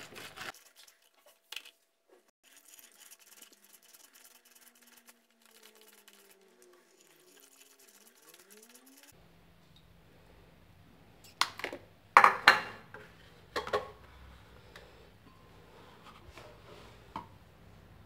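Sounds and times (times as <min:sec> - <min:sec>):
wet squelching on citrus reamer: 0:02.4 - 0:09.1.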